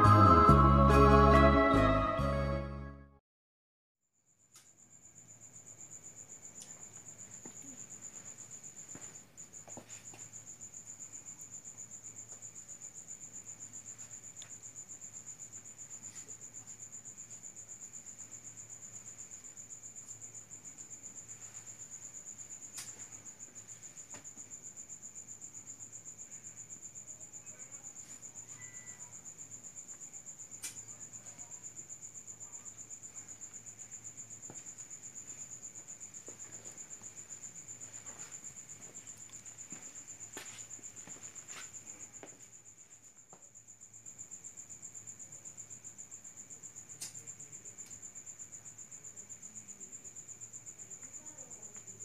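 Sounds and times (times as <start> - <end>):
crickets trilling: 4.2 - 52.0.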